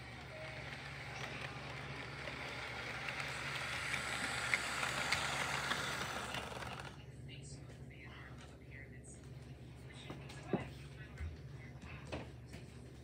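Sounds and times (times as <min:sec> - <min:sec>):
model train wheels rattling: 0:00.0 - 0:07.0.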